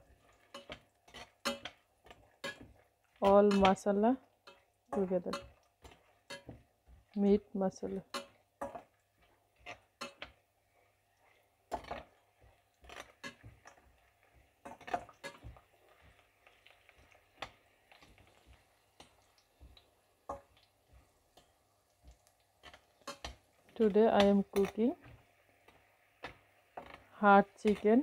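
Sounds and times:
metal spatula scraping pan: 0.0s - 7.2s, 8.0s - 8.9s, 9.6s - 10.4s, 11.7s - 19.2s, 22.6s - 28.0s.

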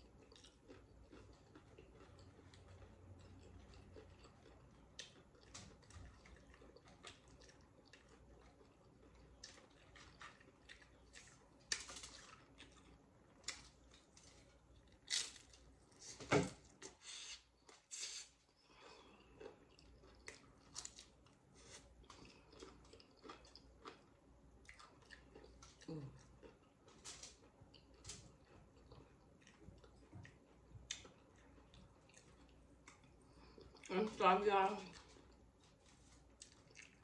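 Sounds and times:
crunching and chewing: 0.0s - 34.2s, 34.8s - 37.0s.

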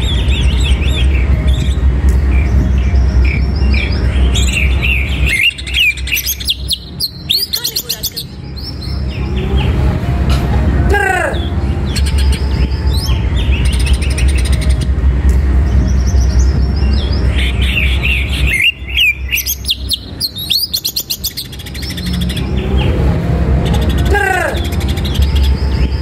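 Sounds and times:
low rumble: 0.0s - 6.1s, 8.2s - 19.3s
bird singing chirps and trills: 0.0s - 26.0s.

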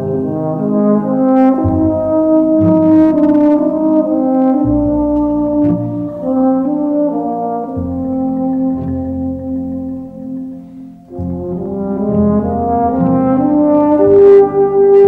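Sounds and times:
brass background music: 0.0s - 15.0s.

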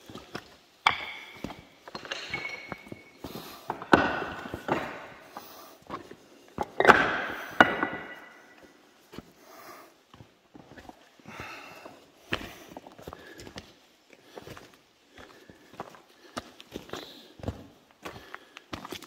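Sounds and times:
footsteps on slate rubble: 0.0s - 9.3s, 10.1s - 19.0s
crunching clinks with ringing: 0.9s - 3.2s.

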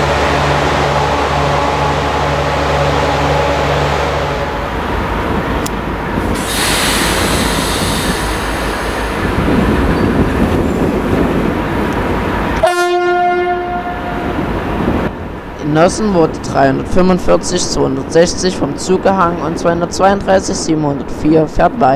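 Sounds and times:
locomotive horn blast: 0.0s - 4.9s, 12.6s - 14.5s
diesel locomotive engine rumble: 0.0s - 21.9s.

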